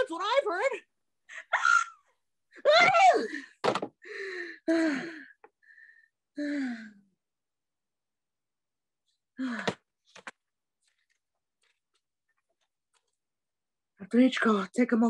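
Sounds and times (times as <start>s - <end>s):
person gasping and moaning: 3.0s - 5.5s, 6.4s - 7.1s.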